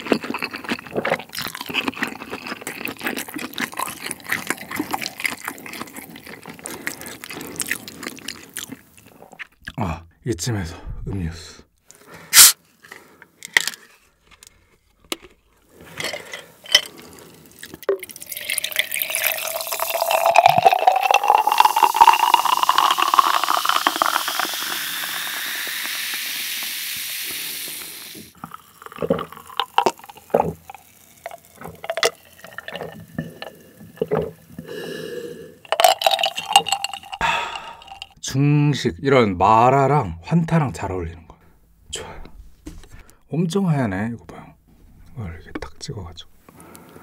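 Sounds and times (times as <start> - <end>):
person sipping: 0.0 - 9.8, 11.9 - 14.0, 15.6 - 38.2
soda pouring into glass jar: 0.2 - 6.6, 16.7 - 38.2
soda fizzing: 17.0 - 38.2
bottle cap twisting clicks: 35.7 - 38.2.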